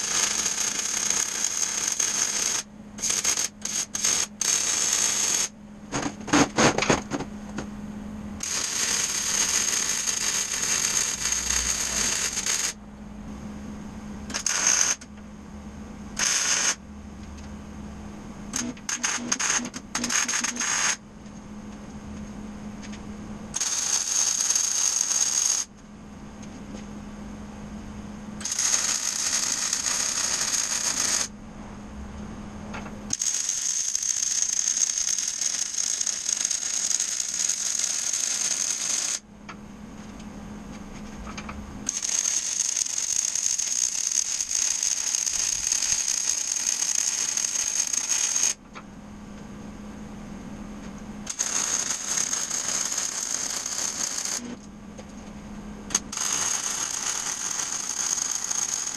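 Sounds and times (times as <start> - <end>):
welder arc crackling: 0.0 - 5.5, 8.4 - 12.8, 14.3 - 15.1, 16.2 - 16.8, 18.5 - 21.0, 51.3 - 54.6
low hum: 11.2 - 16.2, 21.0 - 23.6.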